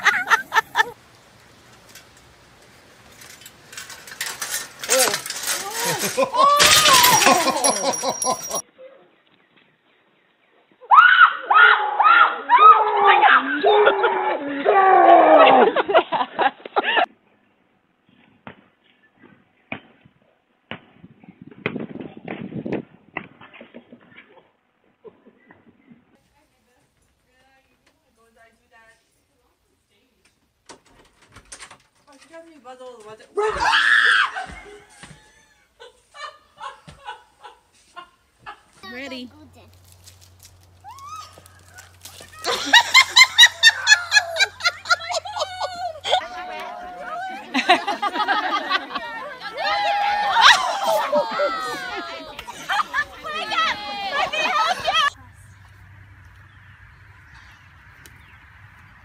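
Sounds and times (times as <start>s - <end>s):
person laughing hard: 0.0s - 1.0s, 5.7s - 8.6s, 42.4s - 46.4s, 50.4s - 55.1s.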